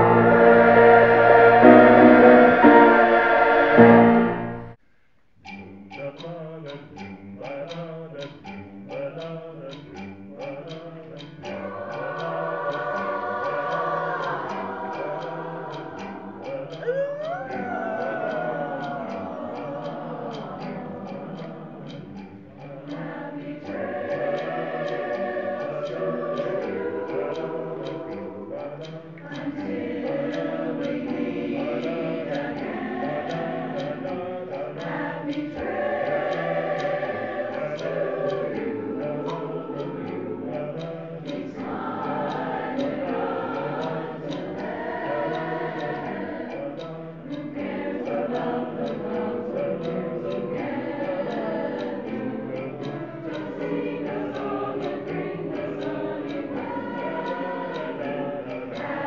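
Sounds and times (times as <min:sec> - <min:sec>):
steady beat: 0:00.0 - 0:04.7
choir singing in harmony: 0:00.0 - 0:04.8, 0:07.4 - 0:59.0.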